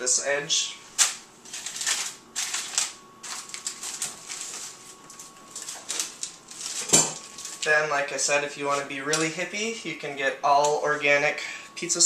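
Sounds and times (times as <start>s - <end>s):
plastic packaging crinkling: 1.0s - 7.8s.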